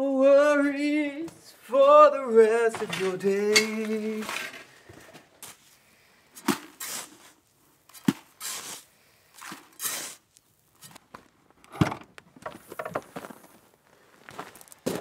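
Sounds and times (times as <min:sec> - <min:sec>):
trowel scraping sand: 0:06.4 - 0:11.0.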